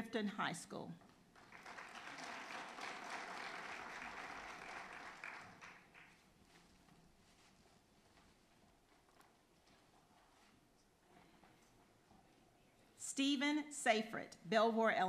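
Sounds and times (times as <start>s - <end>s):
audience applauding: 1.3s - 6.2s.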